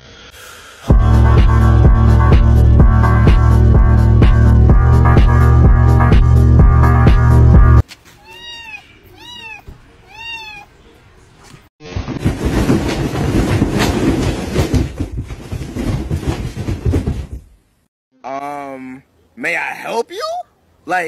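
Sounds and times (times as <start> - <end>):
kitten meowing: 8.2 - 10.7.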